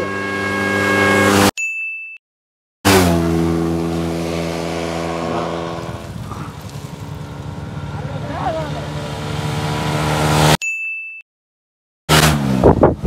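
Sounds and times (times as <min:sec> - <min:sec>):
motorcycle engine running: 0:00.0 - 0:01.5, 0:02.9 - 0:10.6.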